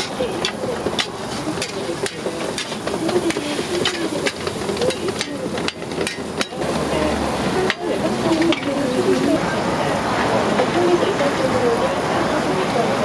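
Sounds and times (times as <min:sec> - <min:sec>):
metal utensils scraping on griddle: 0:00.0 - 0:07.0.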